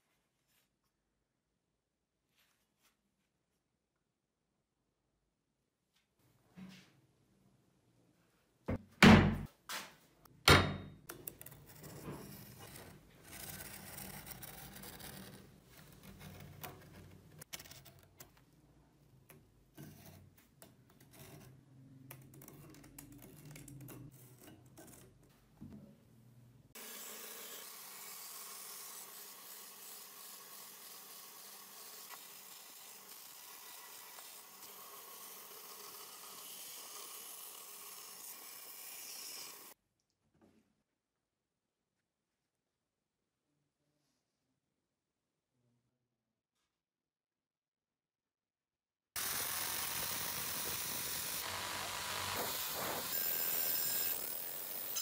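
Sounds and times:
wooden board thunking on workbench: 8.7 - 9.5
bandsaw cutting wood: 26.8 - 39.8, 49.2 - 55.0.

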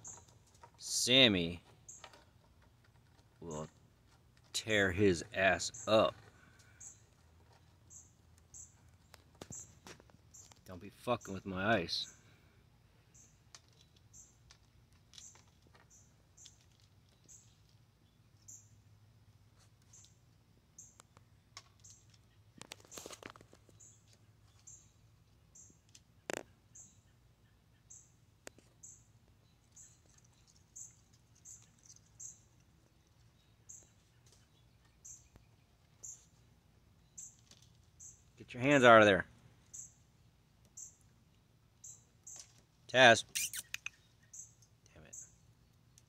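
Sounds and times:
faint high chirp: 43.3 - 45.4.

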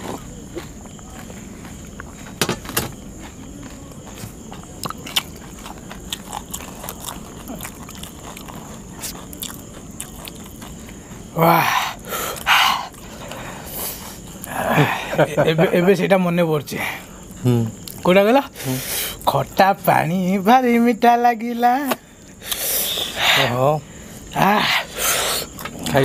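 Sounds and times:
crunching crisp shells: 0.0 - 14.6.

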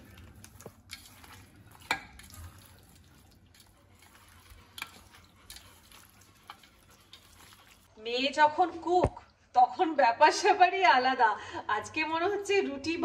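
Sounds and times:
hands mixing meat in a metal bowl: 0.0 - 8.3.

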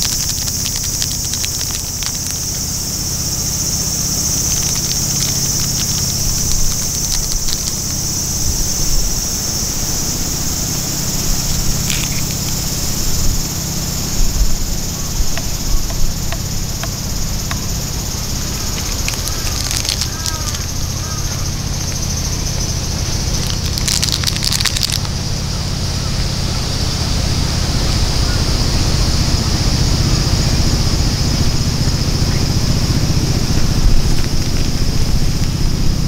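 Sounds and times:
light clicks and ticks: 0.0 - 8.3, 15.2 - 25.2
insects chirring: 0.0 - 36.0
low steady rumble: 0.0 - 36.0.

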